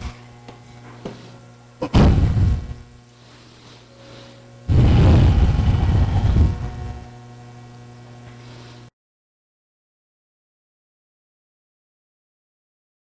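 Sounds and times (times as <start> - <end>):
low electrical hum: 0.0 - 8.9
noise bursts on microphone: 4.7 - 8.0.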